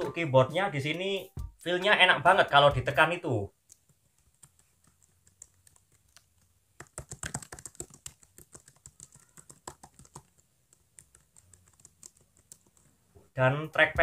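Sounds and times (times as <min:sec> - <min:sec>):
laptop keyboard typing: 0:03.6 - 0:13.0.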